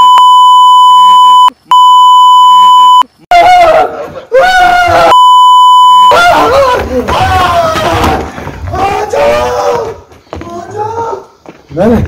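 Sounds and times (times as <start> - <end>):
censor bleep: 0.0 - 3.1, 5.1 - 6.2.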